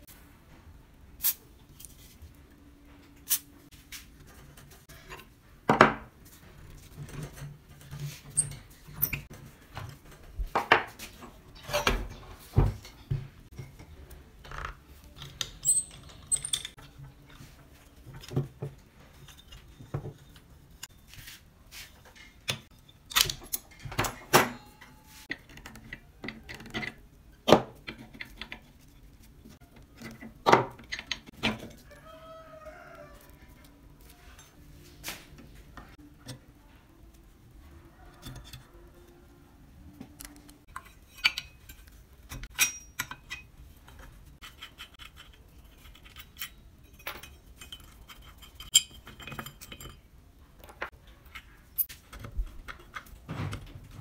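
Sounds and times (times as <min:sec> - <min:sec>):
metal tools clinking on housing: 0:15.6 - 0:16.8, 0:40.8 - 0:43.5, 0:44.5 - 0:50.0.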